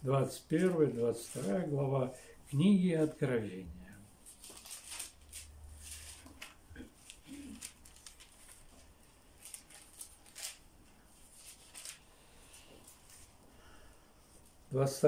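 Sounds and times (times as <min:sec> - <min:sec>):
thin paper pages rustling: 0:00.4 - 0:01.9, 0:04.2 - 0:13.4.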